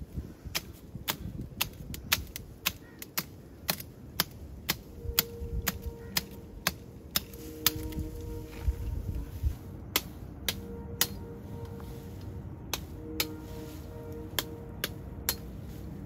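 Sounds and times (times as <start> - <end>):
knife hacking woody stem: 0.5 - 8.0.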